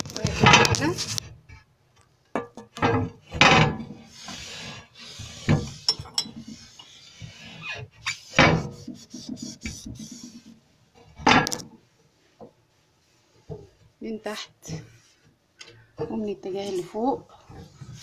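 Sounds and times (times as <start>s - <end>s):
cloth rubbing on cabinet: 4.1s - 10.6s.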